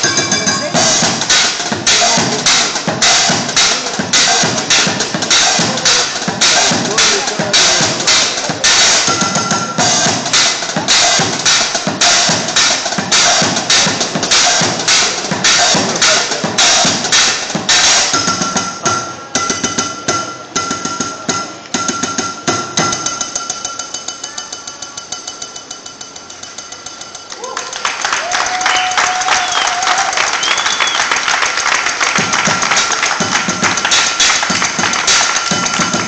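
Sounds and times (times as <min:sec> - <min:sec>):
cymbal crashes: 0:00.0 - 0:24.3
metallic ringing: 0:00.0 - 0:27.5
improvised bucket and pot drumming: 0:00.0 - 0:27.8, 0:28.5 - 0:36.0.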